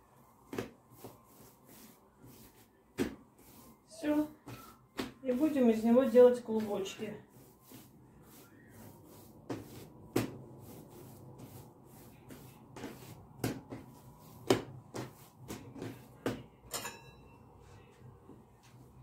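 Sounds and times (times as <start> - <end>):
dough thumping on wooden table: 2.9 - 3.2, 4.4 - 5.4, 9.5 - 10.4, 12.7 - 16.6
short ringing clink: 16.7 - 17.4.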